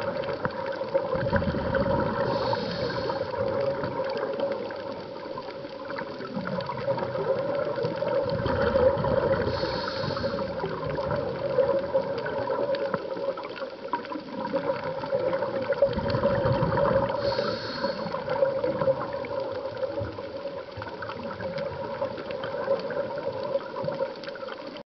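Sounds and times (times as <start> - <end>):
diver's bubbles gurgling: 0.0 - 24.8
brief hiss: 2.3 - 3.3, 9.5 - 10.6, 17.2 - 18.2.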